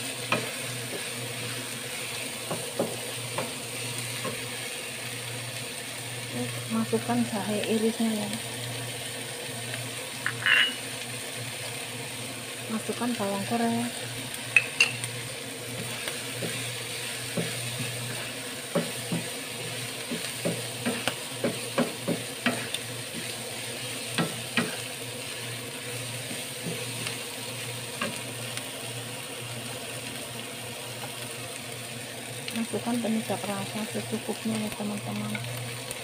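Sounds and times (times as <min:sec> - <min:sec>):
sizzle of frying: 0:00.0 - 0:36.0
spatula knocking against pan: 0:18.7 - 0:19.3, 0:20.0 - 0:23.3, 0:24.2 - 0:24.8.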